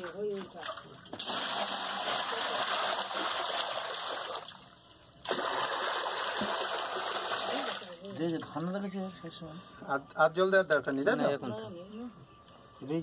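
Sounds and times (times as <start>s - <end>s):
water pouring into concrete tank: 0.0s - 8.6s.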